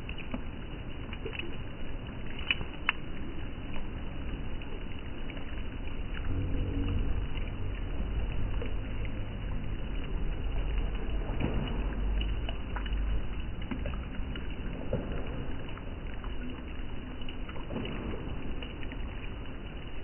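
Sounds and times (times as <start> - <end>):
small water splashes: 0.0 - 20.0.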